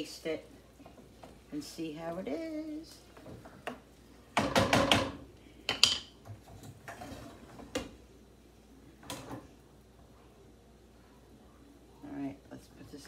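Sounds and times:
pans and utensils clattering: 0:04.4 - 0:07.9.

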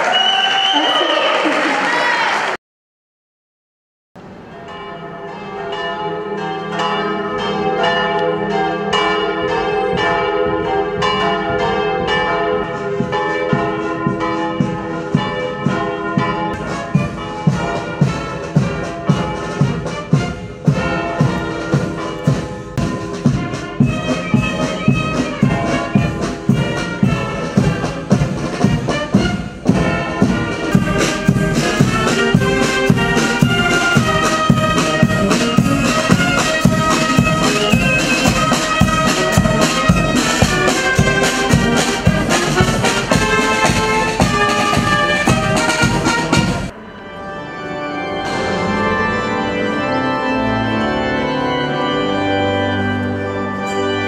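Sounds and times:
bells ringing: 0:04.2 - 0:54.0
marching band playing: 0:06.3 - 0:54.0
steady drumbeat: 0:13.0 - 0:46.8.

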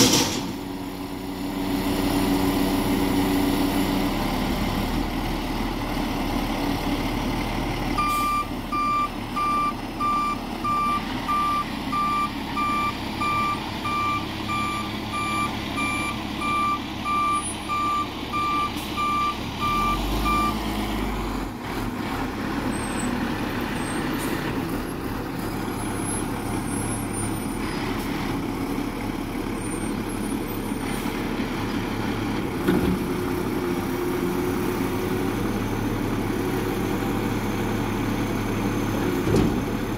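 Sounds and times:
diesel truck engine running: 0:00.0 - 0:39.9
reversing alarm beeping: 0:08.0 - 0:20.6.

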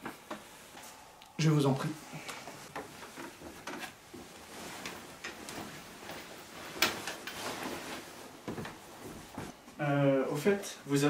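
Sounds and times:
footsteps across a room: 0:02.1 - 0:09.8.

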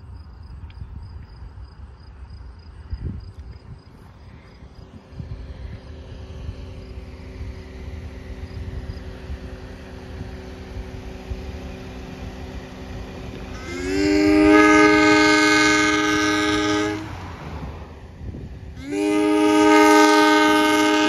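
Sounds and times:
train air horn: 0:13.5 - 0:17.3, 0:18.8 - 0:21.0.

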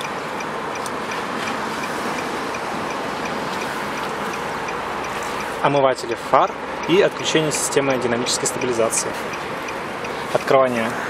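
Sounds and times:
faint high ticks: 0:00.0 - 0:05.5
steady background noise: 0:00.0 - 0:11.0.

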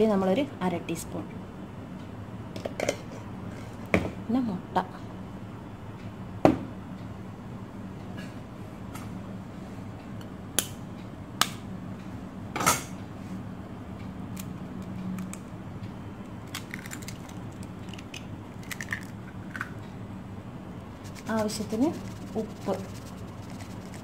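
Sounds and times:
eggshell cracking: 0:16.3 - 0:19.7.

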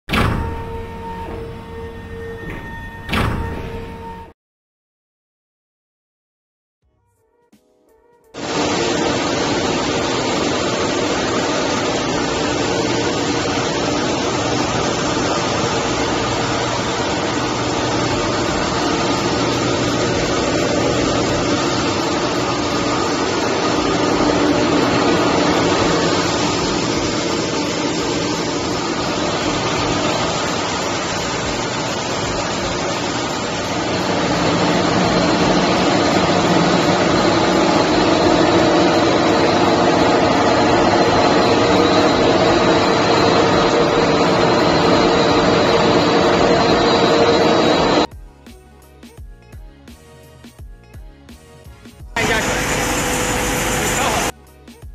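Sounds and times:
machinery drone with hiss: 0:08.4 - 0:48.1, 0:52.2 - 0:54.4.

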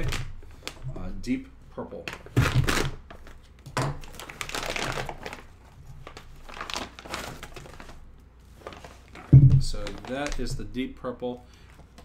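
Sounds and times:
plastic packaging crinkling: 0:02.0 - 0:10.8.

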